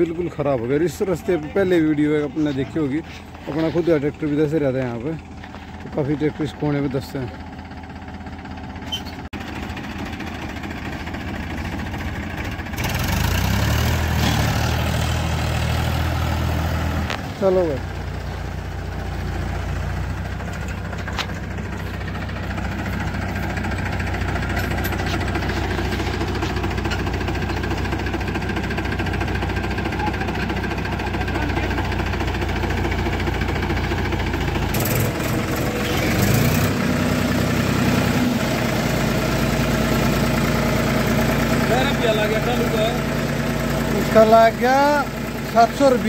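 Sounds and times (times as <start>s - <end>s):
tractor engines under load: 0.0s - 46.0s.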